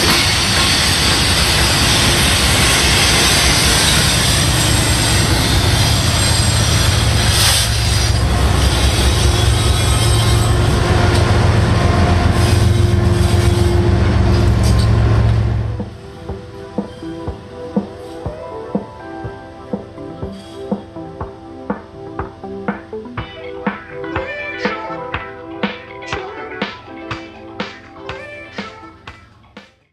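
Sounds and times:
train wheels rumbling on rails: 0.0 - 26.0
diesel locomotive engine drone: 0.0 - 29.6.

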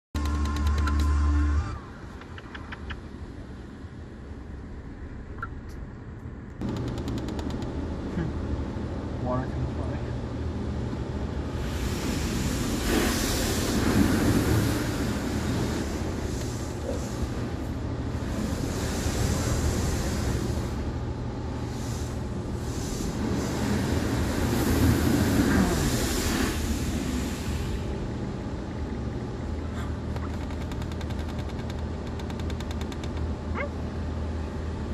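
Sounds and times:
carwash hum: 0.2 - 34.9
steady low rumble: 0.2 - 34.9
water spraying against car: 11.4 - 28.1.

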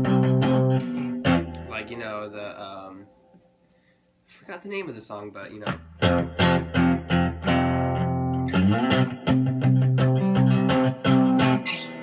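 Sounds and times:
electric guitar chords: 0.0 - 2.3, 5.6 - 12.0.

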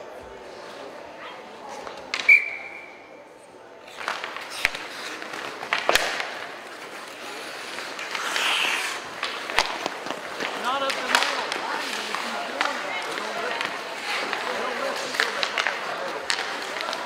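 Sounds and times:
spectators' voices: 0.0 - 17.0
sticks and puck clacking: 1.6 - 2.9, 3.8 - 17.0
skates scraping ice: 3.8 - 17.0.

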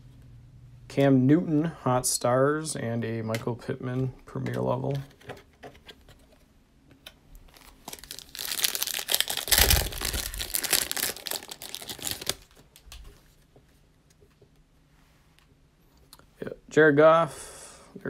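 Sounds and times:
foil wrapper tearing and crinkling: 7.5 - 12.6.

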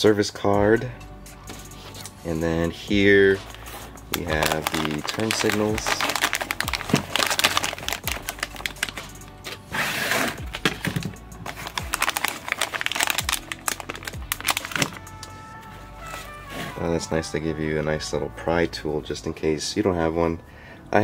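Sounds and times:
background music with drum beat: 0.6 - 12.1
foil bag crinkling: 3.4 - 9.6, 10.3 - 16.9
foam packing pieces rustling: 3.4 - 17.1.

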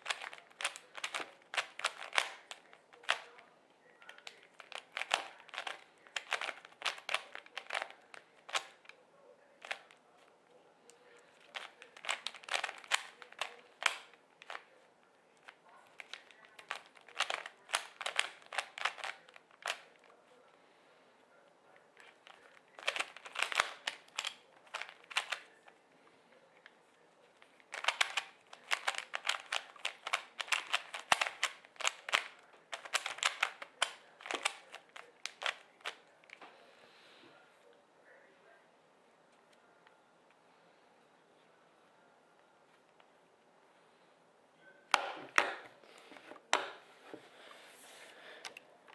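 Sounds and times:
puzzle cube clicking as turned: 0.0 - 3.3, 4.1 - 9.0, 9.6 - 9.9, 11.4 - 14.7, 15.4 - 20.0, 22.0 - 25.5, 27.6 - 36.0.

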